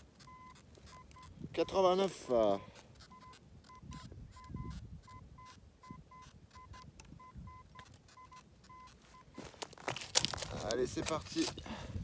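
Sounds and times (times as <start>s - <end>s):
metal detector beeps: 0.2s - 9.6s.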